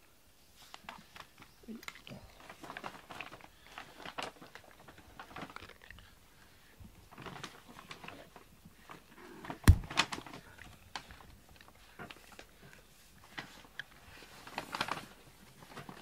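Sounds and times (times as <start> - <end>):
loud thump: 9.6 - 10.0.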